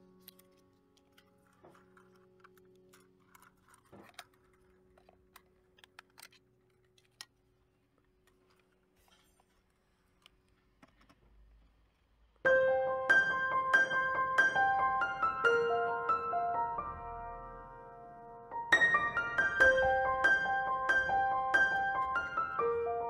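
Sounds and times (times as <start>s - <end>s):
loud piano-like music: 12.4s - 23.0s.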